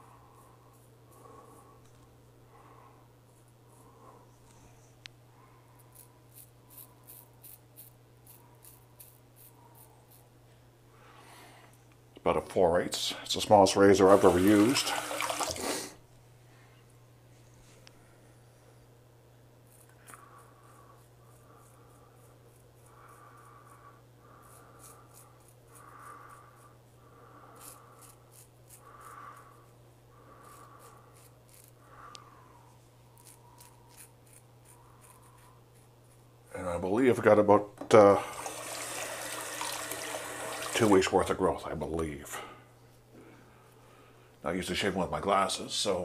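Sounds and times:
razor scraping beard stubble: 0.4 - 1.6, 5.8 - 10.3, 14.0 - 14.9, 19.6 - 32.0, 33.1 - 36.3.

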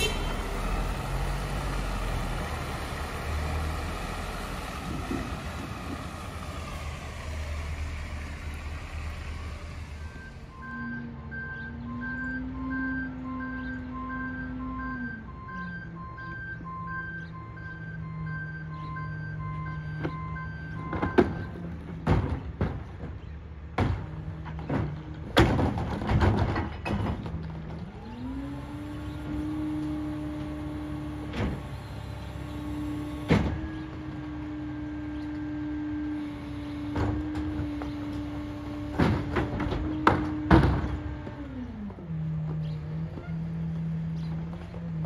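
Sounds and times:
diesel engine idling and revving: 0.0 - 45.0
trash cart banging against truck: 20.0 - 27.9, 32.9 - 34.2, 36.8 - 41.4.

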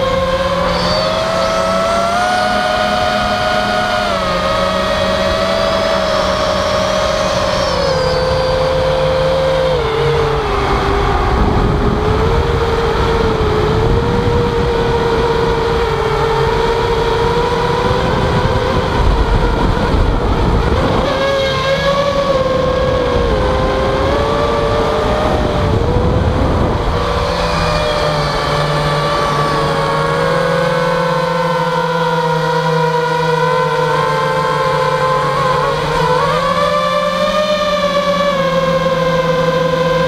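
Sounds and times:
rushing wind noise: 0.0 - 31.6
quadcopter motors whining: 0.0 - 40.0.

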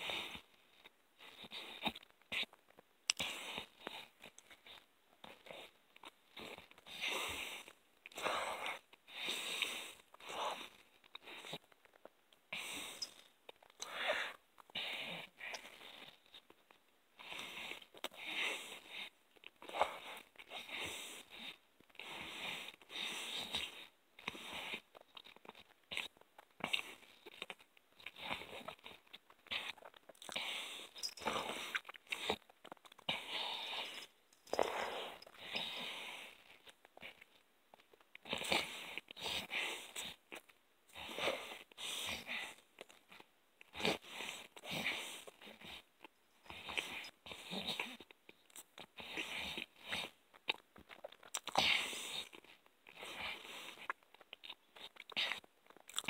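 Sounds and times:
person chewing food: 0.1 - 41.8, 42.4 - 56.0
heavy breathing through nose: 6.4 - 11.7, 12.5 - 13.2, 13.8 - 16.2, 29.5 - 37.3.

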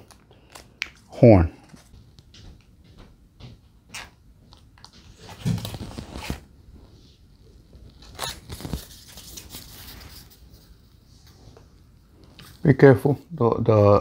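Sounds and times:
cardboard scraping and rustling: 5.1 - 6.5.

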